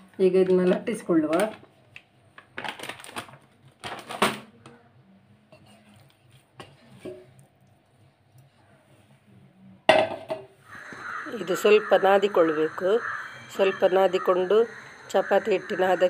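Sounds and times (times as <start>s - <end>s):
plastic packet rustling: 0.4s - 4.5s.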